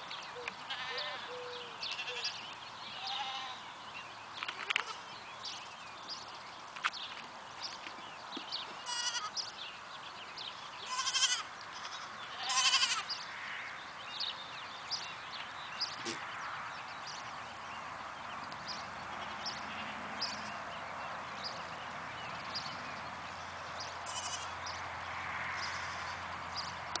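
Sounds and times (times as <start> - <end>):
goat kids bleating: 0.7 - 1.3, 1.9 - 2.4, 3.0 - 3.6, 4.5 - 5.0, 8.8 - 9.5, 10.8 - 13.2, 24.1 - 24.6.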